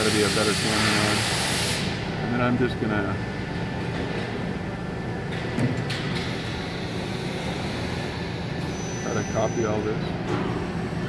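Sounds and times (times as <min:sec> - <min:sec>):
industrial hum: 0:00.0 - 0:11.0.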